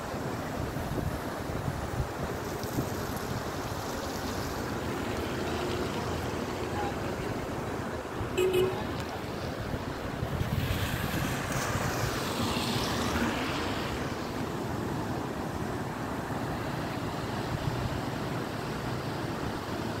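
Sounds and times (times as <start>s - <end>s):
river rushing over rapids: 0.0s - 20.0s
wind buffeting microphone: 8.0s - 13.2s
vehicle passing: 10.4s - 14.3s.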